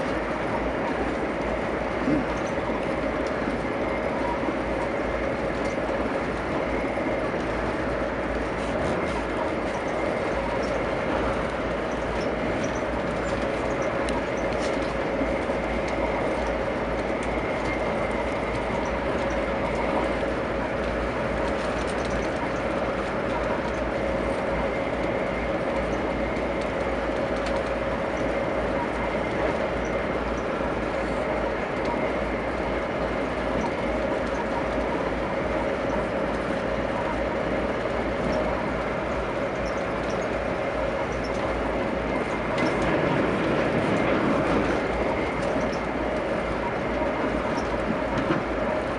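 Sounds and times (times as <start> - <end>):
constant hum: 0.0 - 48.9
train wheels rumbling on track: 0.0 - 48.9.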